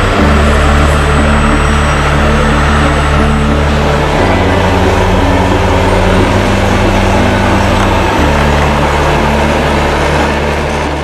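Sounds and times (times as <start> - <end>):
toy truck engine: 0.0 - 11.0.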